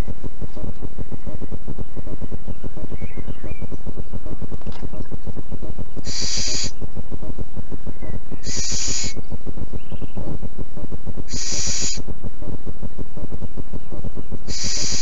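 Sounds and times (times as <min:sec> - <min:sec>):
low crackling noise: 0:00.0 - 0:15.0
owl hissing calls: 0:06.0 - 0:06.8, 0:08.0 - 0:10.4, 0:11.2 - 0:12.1, 0:14.3 - 0:15.0.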